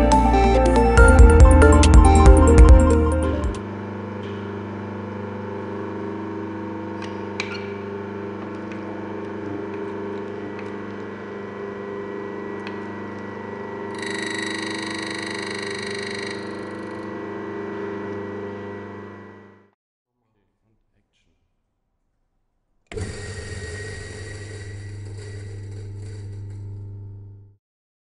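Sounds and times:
coffee grinder humming: 0:05.1 - 0:19.7, 0:22.9 - 0:27.5
high-pitched burr rubbing: 0:13.9 - 0:17.0.

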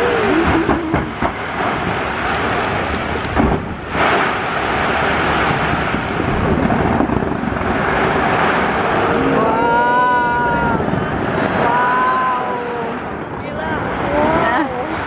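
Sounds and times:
fireworks rumbling bangs: 0:00.0 - 0:15.0
sharp firework cracks: 0:00.4 - 0:08.8.

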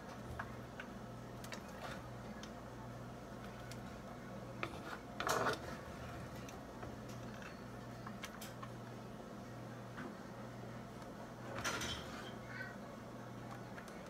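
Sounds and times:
low steady hum: 0:00.0 - 0:14.0
plastic spoon scraping skillet: 0:04.6 - 0:06.4.

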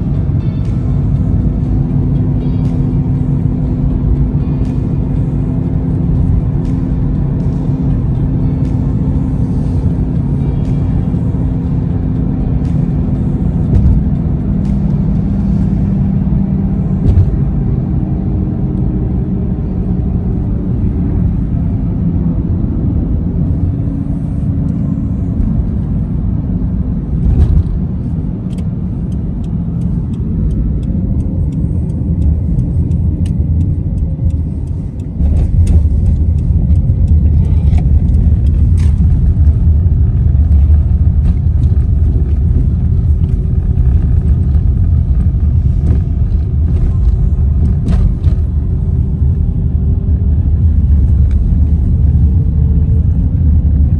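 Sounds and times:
car tyre and engine rumble: 0:00.0 - 0:53.9.

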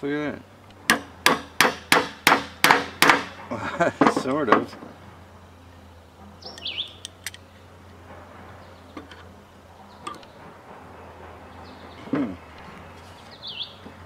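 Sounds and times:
bird chirping: 0:06.3 - 0:07.8, 0:08.5 - 0:10.4, 0:11.4 - 0:14.0.

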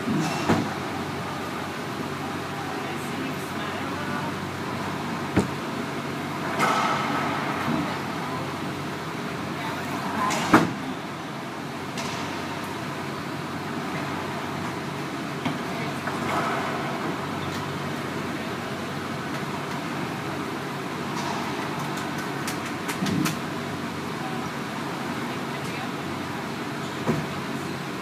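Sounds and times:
steady background hum: 0:00.0 - 0:28.0.

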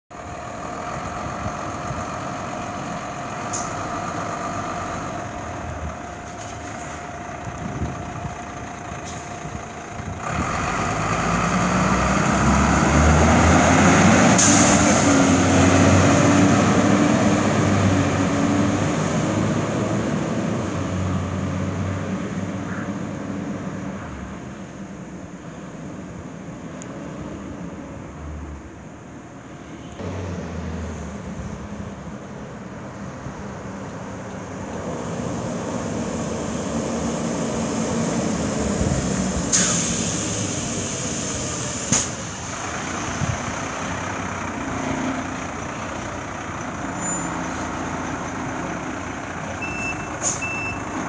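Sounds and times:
fire engine diesel engine: 0:00.1 - 0:51.0
air brakes hiss: 0:14.4 - 0:15.1, 0:39.4 - 0:42.3, 0:49.8 - 0:50.8.

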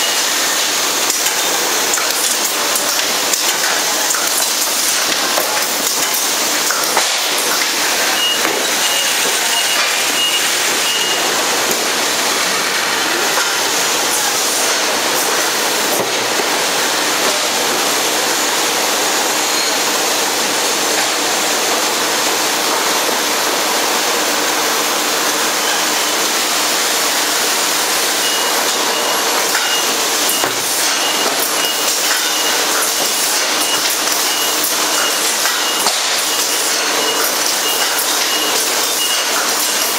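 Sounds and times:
production line machinery hissing: 0:00.0 - 0:39.9
high electronic beeping: 0:07.8 - 0:11.5, 0:28.0 - 0:39.9.

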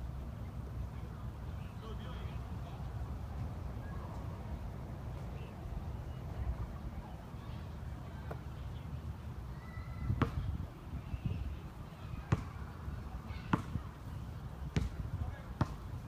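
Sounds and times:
basketball bouncing on hard court: 0:12.3 - 0:12.5, 0:13.5 - 0:13.8, 0:14.7 - 0:15.0, 0:15.6 - 0:15.8.

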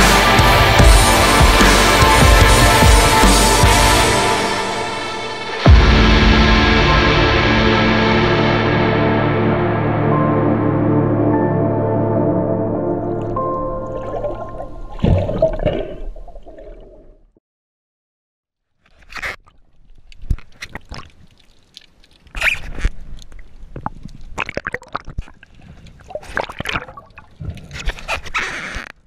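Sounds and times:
ambient music: 0:00.0 - 0:16.4
underwater gurgling and sloshing: 0:12.9 - 0:17.4, 0:18.9 - 0:29.0.

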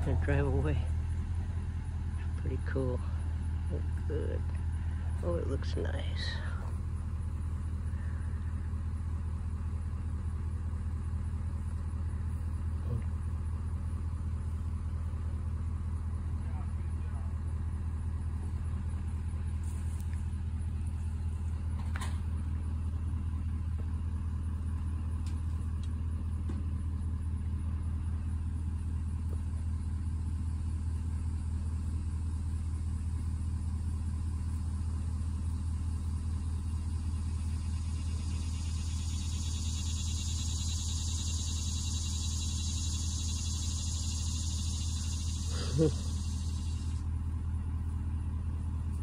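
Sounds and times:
vehicle engine humming: 0:00.0 - 0:49.0.

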